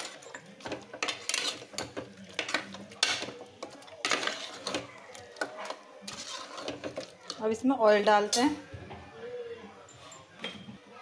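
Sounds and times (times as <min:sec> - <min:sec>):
metal ladle scraping pot: 0:00.0 - 0:07.5.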